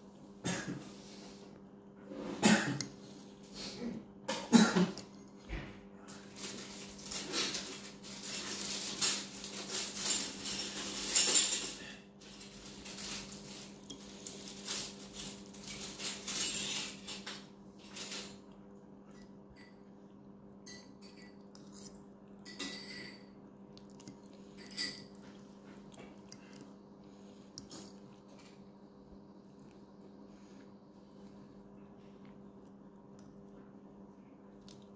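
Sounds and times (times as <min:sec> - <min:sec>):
fork scraping on ceramic plate: 0:21.2 - 0:22.0.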